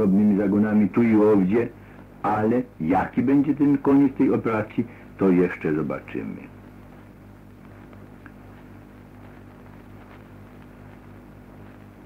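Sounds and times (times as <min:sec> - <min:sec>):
faint hiss: 0:00.0 - 0:12.0
low hum: 0:00.0 - 0:12.0
tiny ticks: 0:07.5 - 0:12.0.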